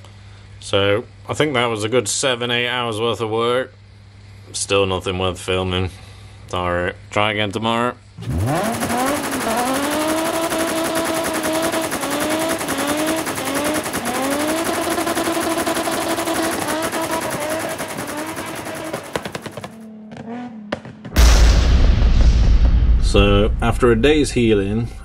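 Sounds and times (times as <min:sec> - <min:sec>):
car engine revving: 0:08.2 - 0:21.1
exhaust crackling pops: 0:08.2 - 0:24.5.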